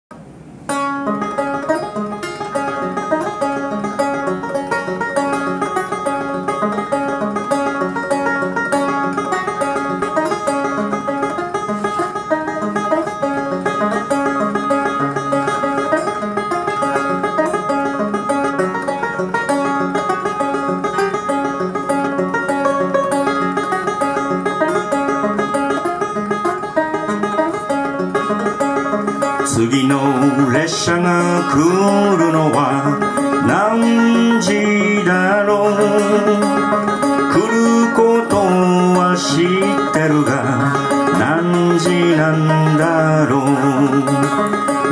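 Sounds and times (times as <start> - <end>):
solo banjo playing: 0.6 - 44.9.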